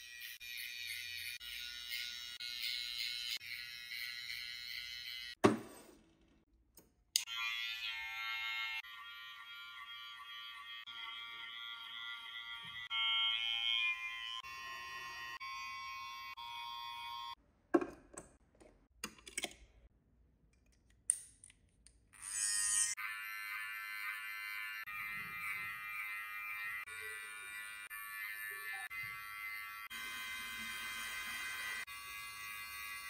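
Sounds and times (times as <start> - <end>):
electric hair clippers buzzing: 0.0 - 5.4, 7.2 - 17.4, 22.2 - 33.0.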